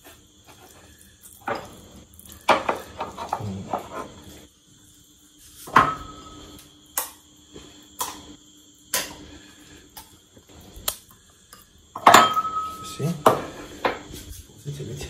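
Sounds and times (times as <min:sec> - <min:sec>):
spoon clinking on ceramic bowls: 0:11.5 - 0:13.4.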